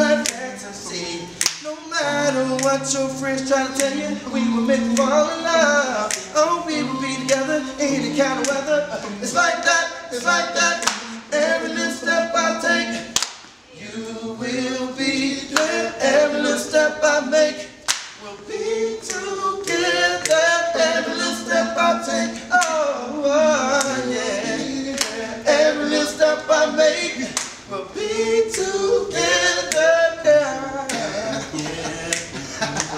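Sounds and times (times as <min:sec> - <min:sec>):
men singing a cappella harmony: 0:00.0 - 0:32.9
hand claps: 0:01.4 - 0:01.7, 0:02.6 - 0:02.8, 0:04.9 - 0:05.2, 0:06.0 - 0:06.3, 0:08.4 - 0:08.7, 0:10.8 - 0:11.2, 0:13.1 - 0:13.6, 0:17.8 - 0:18.2, 0:19.1 - 0:20.4, 0:22.4 - 0:22.8, 0:24.9 - 0:25.2, 0:27.3 - 0:27.6, 0:28.5 - 0:28.8, 0:29.7 - 0:29.9, 0:30.9 - 0:32.9.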